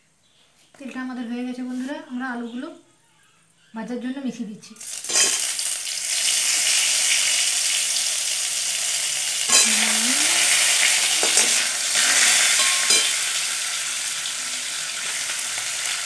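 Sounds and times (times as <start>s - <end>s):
potatoes frying hiss: 4.8s - 16.0s
metal spatula scraping pan: 5.1s - 5.5s, 9.5s - 13.2s.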